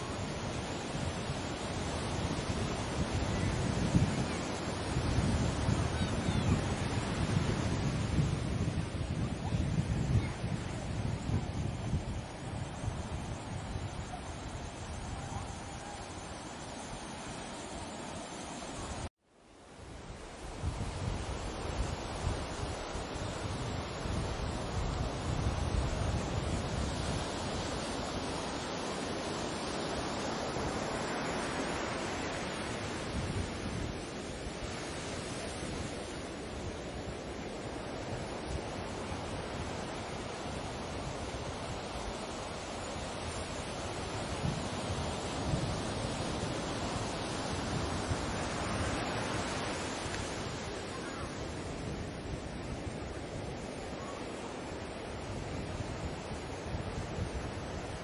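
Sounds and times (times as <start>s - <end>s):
sea surf rushing: 0.0s - 19.1s, 19.8s - 58.0s
waves washing in: 0.0s - 19.1s, 19.7s - 58.0s
wind on microphone: 0.0s - 19.1s, 19.8s - 58.0s.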